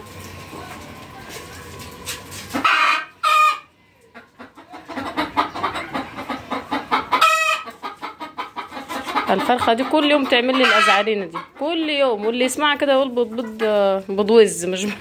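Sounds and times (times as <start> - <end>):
chickens softly calling: 2.5 - 14.0
hen clucking: 2.5 - 15.0
hen squawking: 4.4 - 12.5.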